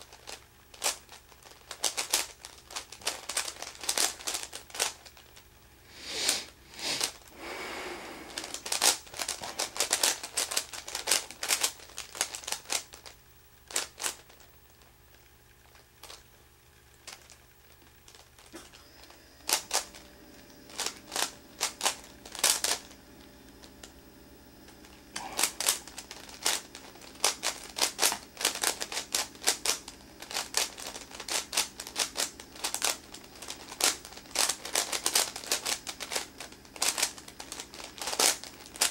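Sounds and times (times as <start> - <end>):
plastic puzzle cube clicking: 8.3 - 13.1, 25.4 - 38.9.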